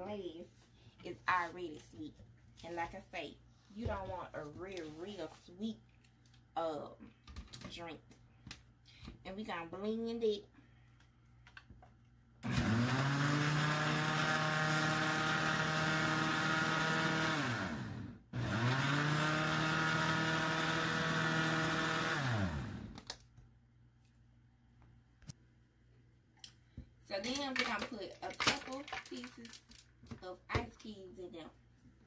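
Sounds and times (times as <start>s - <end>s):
blender motor whining: 12.4s - 23.1s.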